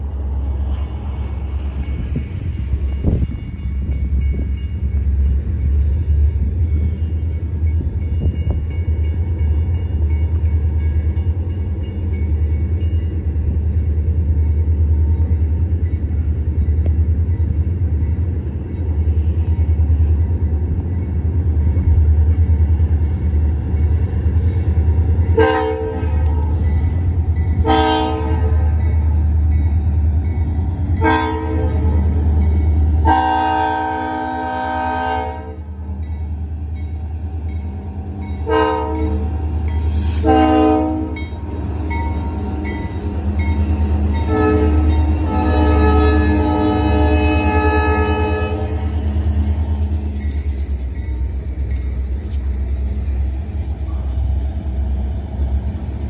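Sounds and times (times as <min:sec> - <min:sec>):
diesel locomotive engine rumble: 0:00.0 - 0:56.0
locomotive air horn blasts: 0:25.4 - 0:26.6, 0:27.6 - 0:28.6, 0:31.0 - 0:31.9, 0:33.0 - 0:35.7, 0:38.4 - 0:39.3, 0:39.9 - 0:41.3, 0:44.2 - 0:49.0.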